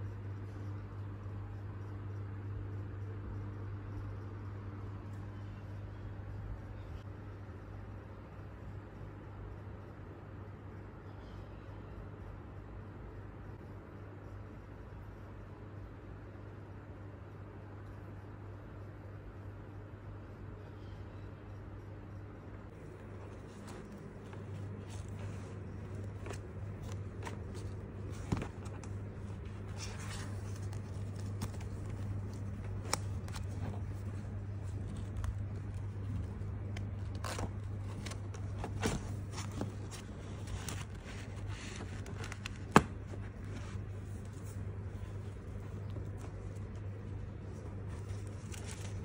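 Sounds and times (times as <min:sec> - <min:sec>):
low hum: 0:00.0 - 0:49.0
card binder rustling and scraping: 0:22.8 - 0:49.0.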